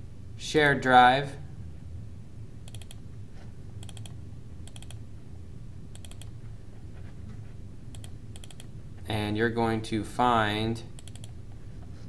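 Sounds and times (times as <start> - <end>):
faint low hum: 0.0 - 12.0
computer mouse button clicking: 2.7 - 3.0, 6.0 - 6.3, 7.9 - 8.7, 11.0 - 11.4.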